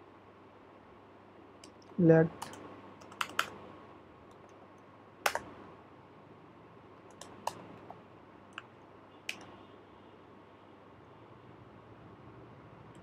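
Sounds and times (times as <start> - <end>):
computer keyboard key clicks: 2.4 - 3.5, 5.2 - 5.5, 7.1 - 7.6.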